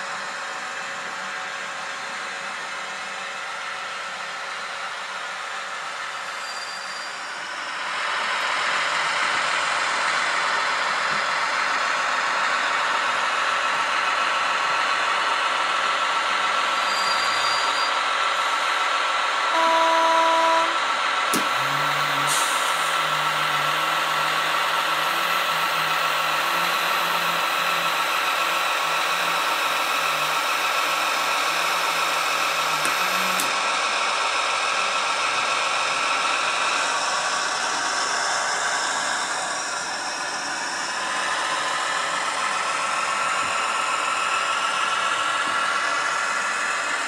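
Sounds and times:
diesel locomotive engine running: 0.0s - 47.0s
locomotive horn toot: 19.5s - 20.8s
click: 32.8s - 33.6s.

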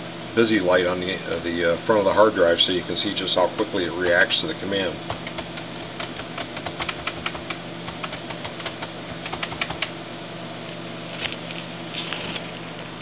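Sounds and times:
steady hum: 0.0s - 13.0s
computer keyboard typing: 5.1s - 9.9s.

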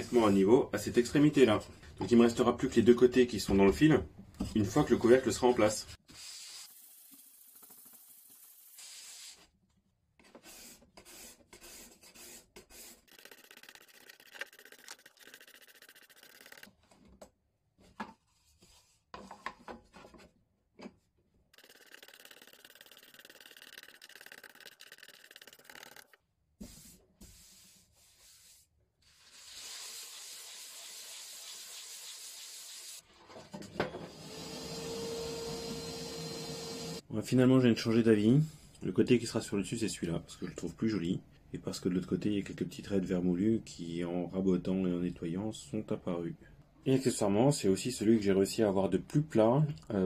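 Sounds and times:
shop vacuum hissing: 34.1s - 37.0s.

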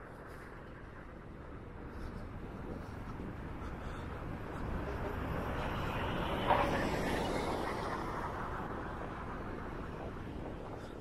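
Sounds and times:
car passing: 3.9s - 10.6s.

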